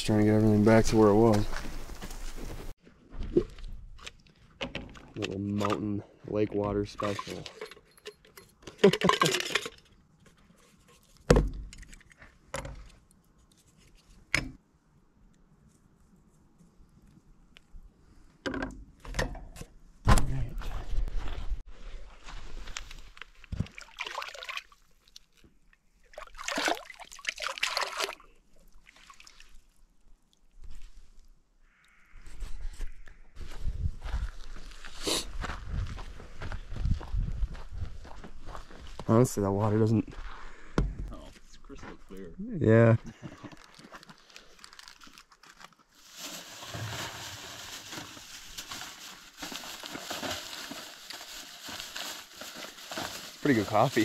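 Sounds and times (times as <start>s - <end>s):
water sloshing and splashing: 23.2s - 31.2s
crinkly rustling: 43.1s - 54.0s.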